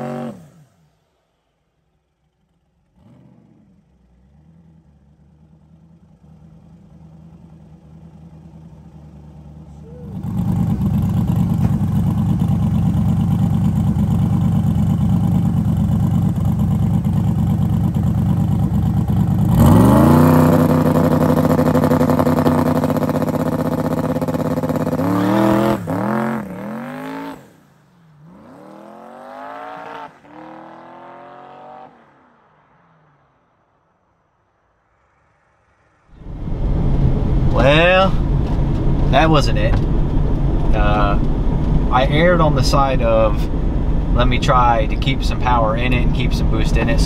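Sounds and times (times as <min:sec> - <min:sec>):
drag car engine revving: 0:00.0 - 0:01.6, 0:02.2 - 0:32.0, 0:36.2 - 0:47.0
tyres spinning on road: 0:02.1 - 0:28.6.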